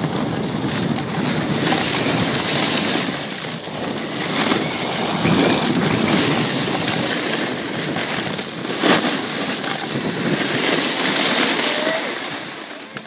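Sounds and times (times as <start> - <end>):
skis scraping over snow: 0.0 - 13.0
wind rushing over microphone: 0.0 - 13.0.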